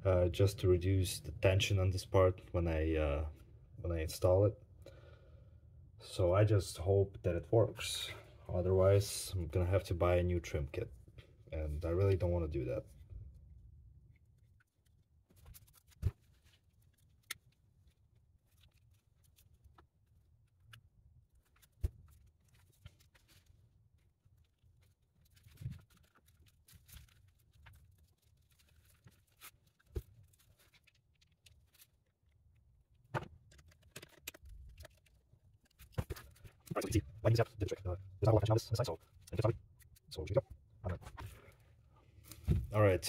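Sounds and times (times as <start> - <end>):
clicks and knocks of handling: 33.0 - 36.8.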